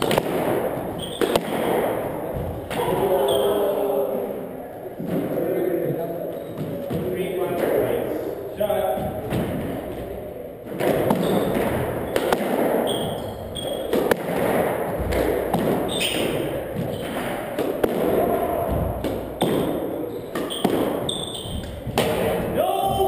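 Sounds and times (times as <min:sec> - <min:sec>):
squash ball hitting rackets and walls: 0:00.0 - 0:03.8, 0:05.0 - 0:23.0
shoes squeaking on wooden floor: 0:00.8 - 0:01.4, 0:05.9 - 0:07.3, 0:11.0 - 0:14.2, 0:14.9 - 0:17.4, 0:18.2 - 0:23.0.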